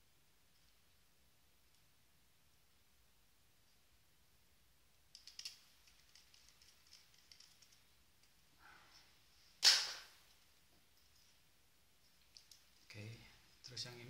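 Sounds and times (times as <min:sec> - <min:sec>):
small plastic clicks and rattles: 0:05.1 - 0:08.4, 0:12.2 - 0:12.8.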